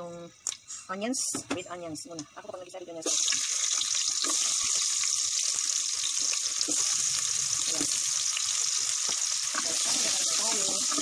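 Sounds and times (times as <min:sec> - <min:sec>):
onions sizzling in oil: 0:02.4 - 0:11.0.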